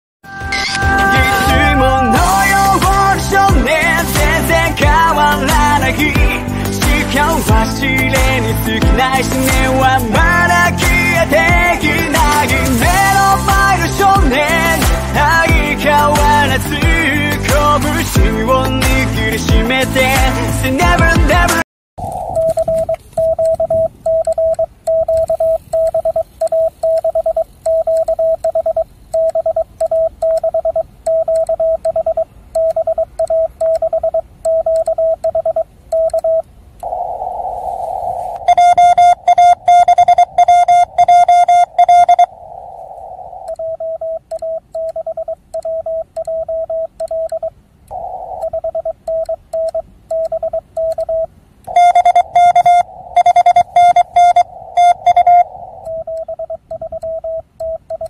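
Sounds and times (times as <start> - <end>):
morse code tone: 0.2 - 37.0, 38.4 - 42.4, 43.4 - 58.0
radio receiver hiss: 22.0 - 29.2, 36.2 - 44.6, 47.1 - 57.3.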